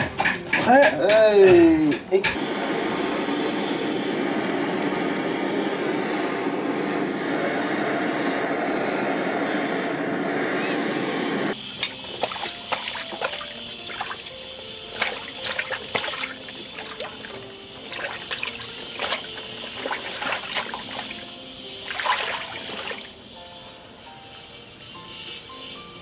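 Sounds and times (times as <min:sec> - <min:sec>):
soft background music: 0:11.5 - 0:26.0
kelp sloshing in water basin: 0:11.8 - 0:14.3, 0:14.9 - 0:21.2, 0:21.8 - 0:23.1
water dripping: 0:11.8 - 0:14.3, 0:14.9 - 0:21.2, 0:21.8 - 0:23.1.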